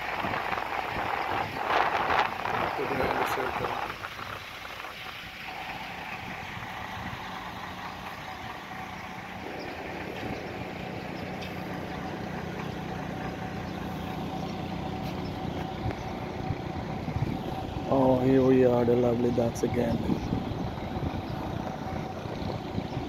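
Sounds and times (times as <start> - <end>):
outdoor background noise: 0.0 - 23.0
low machine hum: 5.7 - 23.0.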